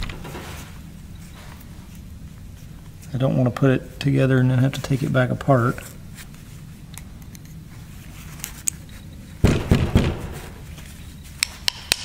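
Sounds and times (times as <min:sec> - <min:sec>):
rustling: 0:00.0 - 0:03.3
dull thumps: 0:09.4 - 0:10.7.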